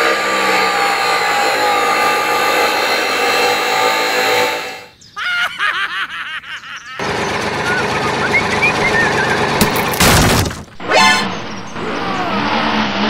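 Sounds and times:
small electric grinder whirring: 0.0s - 4.9s.

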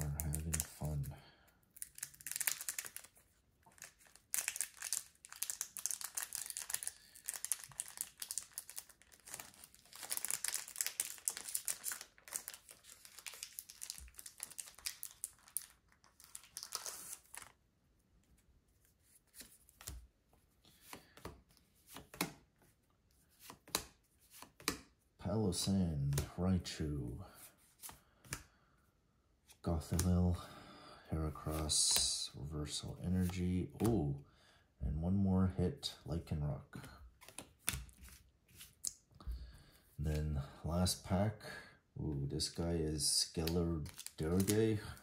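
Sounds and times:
foil wrapper tearing and crinkling: 3.7s - 17.6s.

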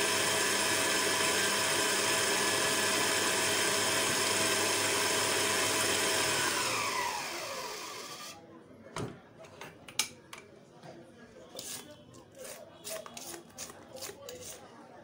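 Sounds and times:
electric stand mixer running: 0.0s - 8.4s
mixer motor winding down: 0.0s - 8.4s.

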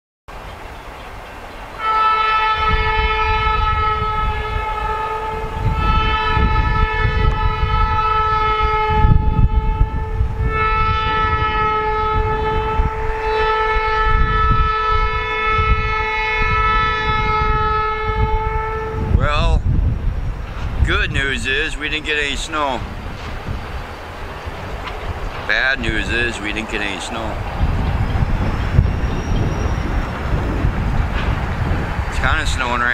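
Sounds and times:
locomotive and train rumble: 0.3s - 32.9s
locomotive air horn blasts: 1.8s - 19.3s, 25.5s - 31.4s.

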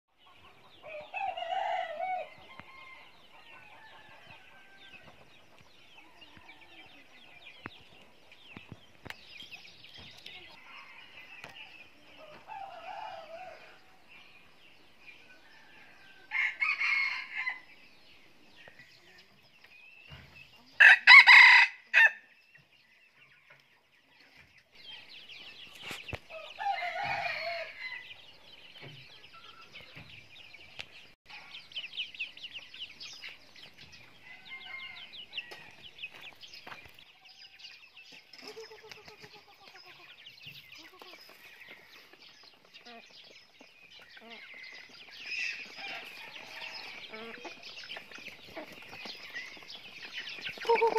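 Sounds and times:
chickens clucking: 0.1s - 21.2s, 22.4s - 50.9s
roosters crowing: 0.8s - 5.3s, 10.5s - 14.2s, 15.2s - 17.8s, 20.8s - 22.3s, 26.3s - 28.4s, 34.0s - 36.0s, 44.1s - 50.9s.

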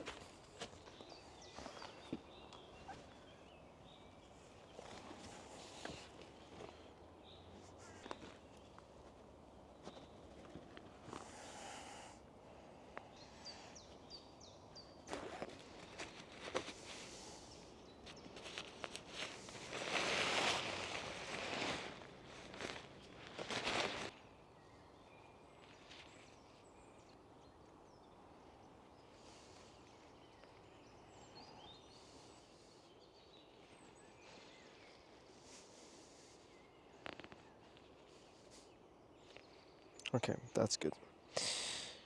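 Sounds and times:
faint bird chirps: 0.0s - 21.0s, 21.6s - 42.0s
nylon tarp rustling: 15.1s - 17.2s, 18.2s - 24.2s.

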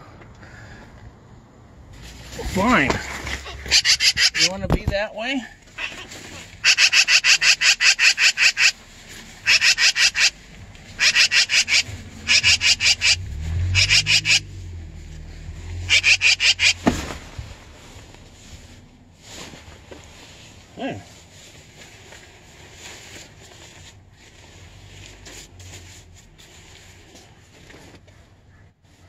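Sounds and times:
magpie chattering: 3.4s - 4.6s, 5.8s - 8.8s, 9.4s - 10.4s, 11.0s - 14.5s, 15.9s - 16.8s.

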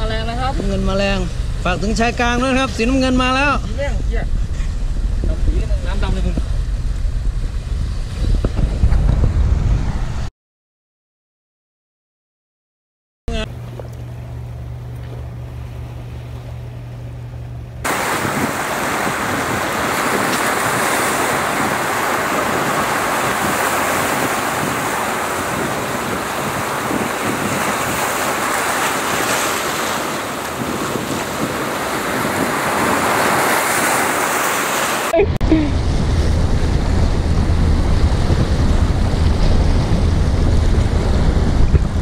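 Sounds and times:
low hum: 0.0s - 10.3s, 13.3s - 19.4s, 35.1s - 42.0s
wind on microphone: 0.0s - 10.3s, 17.8s - 42.0s
surf washing against rocks: 17.8s - 42.0s.

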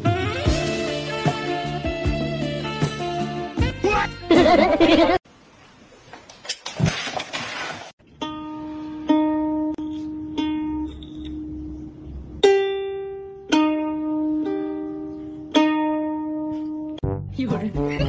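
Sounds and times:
ukulele single notes plucked: 8.1s - 11.8s, 12.4s - 17.2s.

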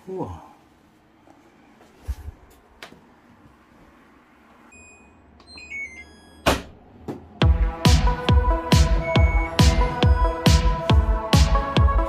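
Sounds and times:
electronic beep melody: 8.7s - 11.0s.

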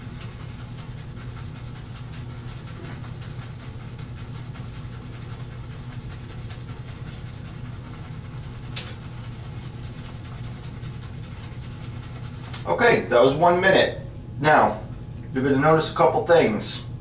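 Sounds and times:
shaving brush swirling on soap: 0.0s - 13.4s
steady low hum: 0.0s - 17.0s.

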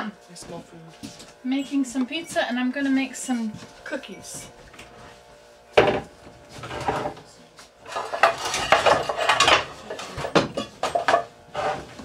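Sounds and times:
dishes and pans clattering: 7.8s - 11.9s.

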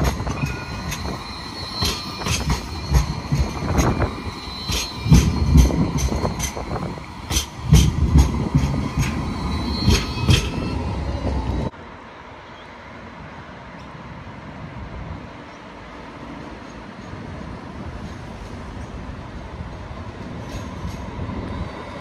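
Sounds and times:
high tram squeal: 0.0s - 11.7s, 20.2s - 22.0s
tram wheels clacking on track: 0.0s - 11.7s, 15.4s - 22.0s.

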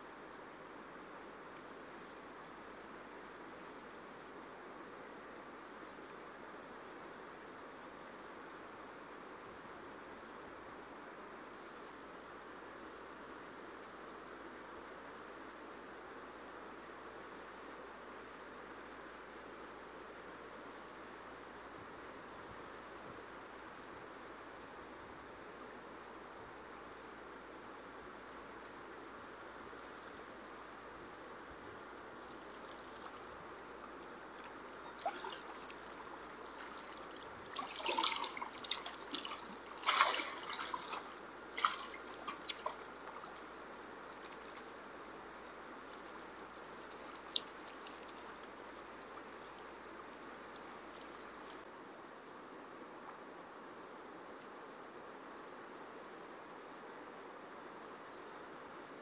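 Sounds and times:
flowing water hiss: 0.0s - 59.0s
fish splashing at water surface: 34.3s - 43.5s, 45.9s - 48.8s.

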